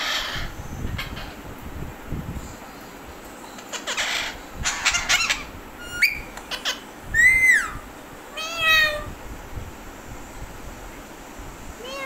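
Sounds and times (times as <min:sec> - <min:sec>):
parakeets squawking: 0:00.0 - 0:01.4, 0:03.6 - 0:09.0
drawn-out meow-like bird calls: 0:07.2 - 0:09.1.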